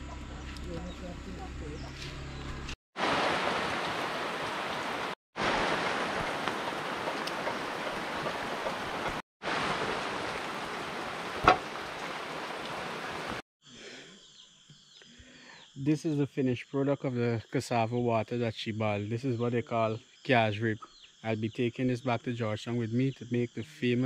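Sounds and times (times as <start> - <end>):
rain hissing: 3.0 - 13.4
sharp crack: 11.4 - 11.8.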